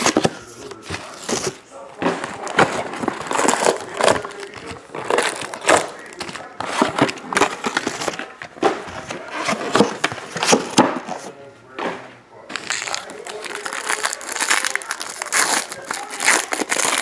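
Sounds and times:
cardboard box handled: 0.0 - 11.3
plastic shrink-wrap crinkling and tearing: 2.4 - 8.3, 12.5 - 17.0.

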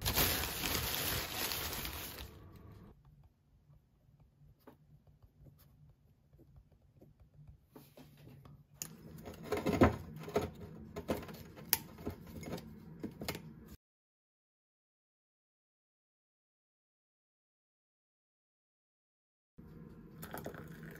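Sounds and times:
paper rustling: 0.0 - 2.6
pen writing in notebook: 4.0 - 8.2.

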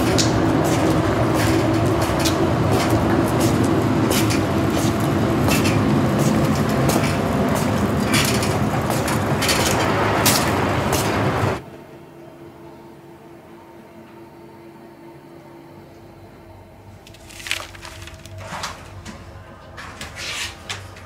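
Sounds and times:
trolley rattles and clacks: 0.0 - 11.6
trolley wheels rumbling on concrete: 0.0 - 11.6.

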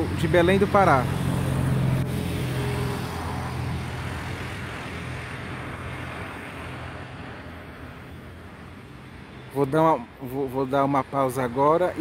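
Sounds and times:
engine drone: 0.0 - 9.5.

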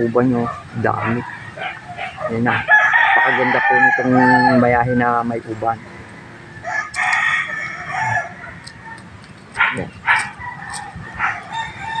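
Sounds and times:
rooster crowing: 1.0 - 9.0, 10.1 - 12.0.

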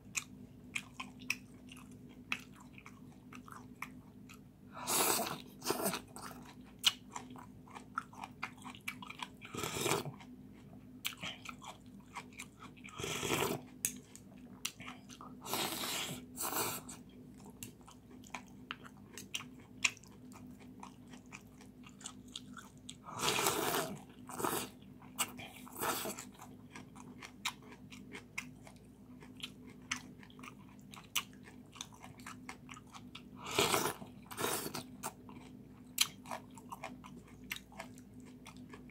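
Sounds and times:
chewing: 0.1 - 4.5, 5.2 - 38.9
slurping noodles: 15.4 - 17.0, 23.1 - 24.7, 33.4 - 34.8.

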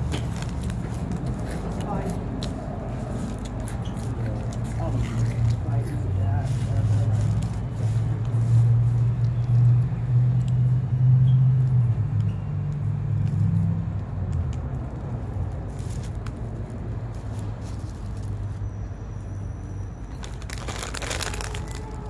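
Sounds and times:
faint clicks and crinkles: 20.1 - 22.0.

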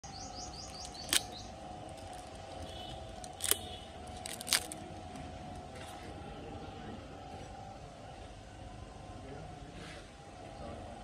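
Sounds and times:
steady background hum: 0.0 - 11.0
sharp short clicks: 0.7 - 1.4.

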